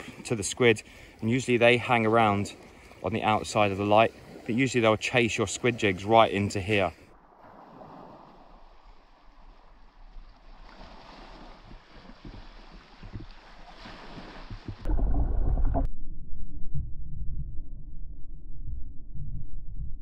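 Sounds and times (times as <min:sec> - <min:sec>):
wind and sea hiss: 0:00.0 - 0:14.8
muffled underwater rumble: 0:14.4 - 0:20.0.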